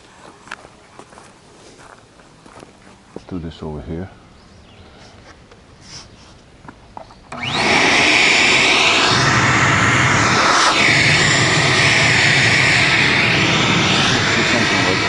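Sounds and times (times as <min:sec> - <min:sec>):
shop vacuum motor running: 0:07.3 - 0:15.0.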